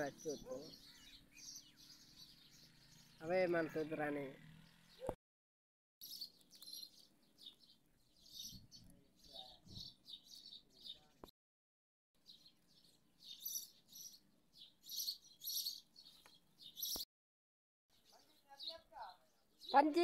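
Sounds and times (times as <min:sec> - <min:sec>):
birds chirping: 0:00.0 - 0:05.2, 0:06.0 - 0:11.3, 0:12.2 - 0:17.1, 0:17.9 - 0:20.0.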